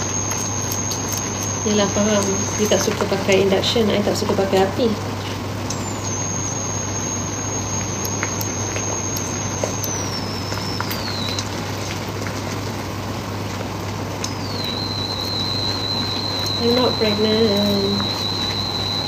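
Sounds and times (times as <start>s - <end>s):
stirring clicks: 0.0s - 3.5s, 14.2s - 19.0s
faint high whine: 0.0s - 13.2s, 14.0s - 19.0s
food sizzling in a pan: 0.0s - 19.0s
low steady hum: 0.0s - 19.0s.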